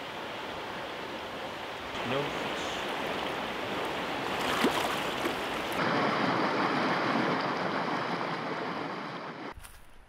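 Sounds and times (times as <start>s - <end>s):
water rushing over rocks: 0.0s - 8.8s.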